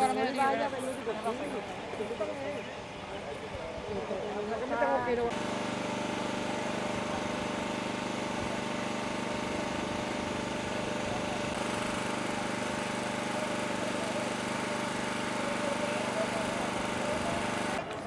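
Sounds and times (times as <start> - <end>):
small engine buzzing: 5.3 - 18.0.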